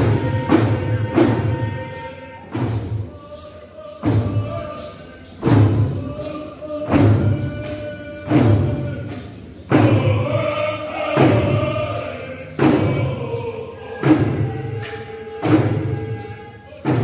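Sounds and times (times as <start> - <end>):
group chanting: 0.0 - 17.0
drum beating slowly: 9.7 - 17.0.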